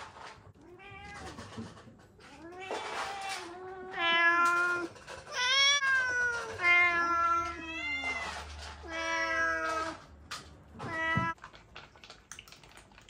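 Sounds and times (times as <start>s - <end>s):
cats meowing: 0.6s - 10.1s, 10.7s - 11.4s.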